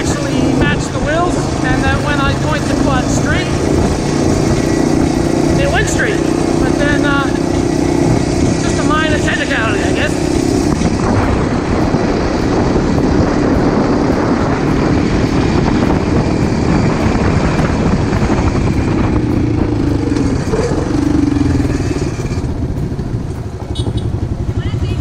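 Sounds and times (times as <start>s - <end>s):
quad bike engine running: 0.0s - 25.0s
wind on microphone: 0.0s - 25.0s.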